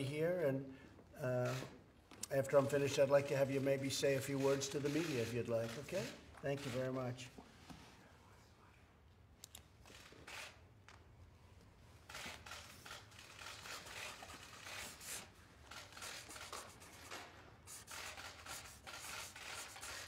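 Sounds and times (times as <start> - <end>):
pen scratching on paper: 13.4 - 20.0.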